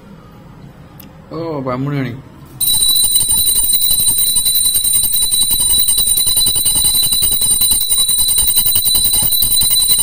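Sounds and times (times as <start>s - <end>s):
bell rung rapidly: 2.6s - 10.0s.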